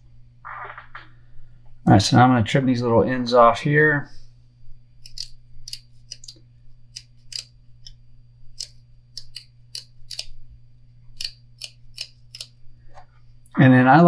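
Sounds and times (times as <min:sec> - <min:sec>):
scissors snipping: 0:05.0 - 0:08.0, 0:08.6 - 0:10.3, 0:11.2 - 0:12.6.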